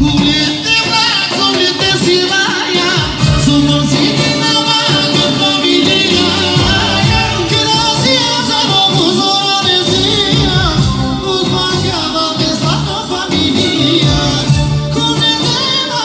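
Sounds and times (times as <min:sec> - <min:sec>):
dance band over pa: 0:00.0 - 0:16.0
driving drum beat: 0:00.0 - 0:16.0.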